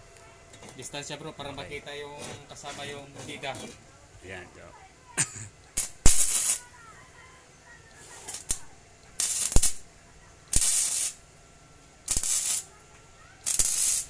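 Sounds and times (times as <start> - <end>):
welder arc crackling: 5.6 - 6.8, 7.8 - 11.3, 11.9 - 14.0.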